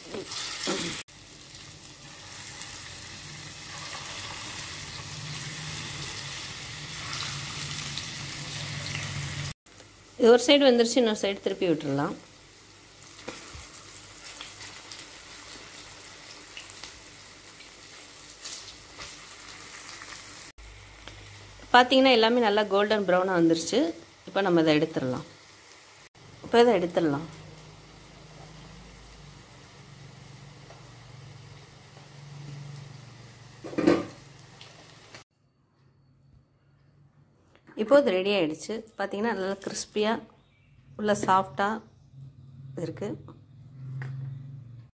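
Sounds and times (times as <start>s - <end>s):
hot oil sizzling and crackling: 0.0s - 35.3s.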